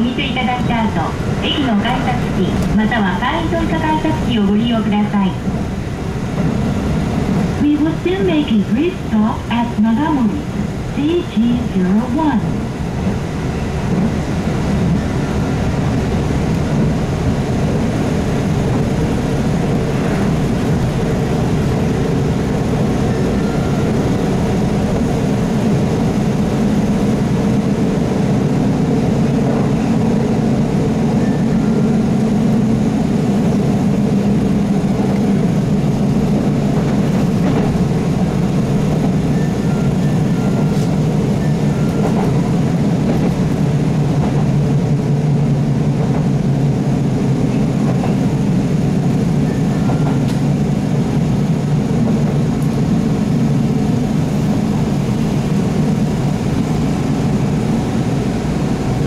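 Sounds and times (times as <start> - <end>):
wheel and rail running noise: 11.4 - 59.0.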